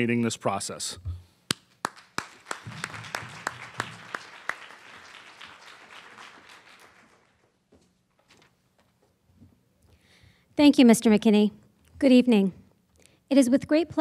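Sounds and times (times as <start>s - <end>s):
person clapping close to microphone: 1.5s - 7.4s
audience applause: 1.8s - 7.6s.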